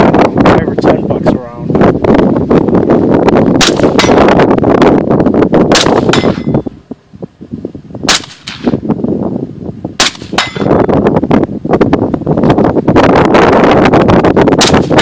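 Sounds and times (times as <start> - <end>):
wind buffeting microphone: 0.0 - 15.0
rifle shots: 3.6 - 4.3, 5.7 - 6.4, 8.1 - 8.8, 10.0 - 10.7, 14.6 - 15.0
metallic ring of steel target: 3.6 - 4.4, 5.7 - 6.7, 10.0 - 10.9.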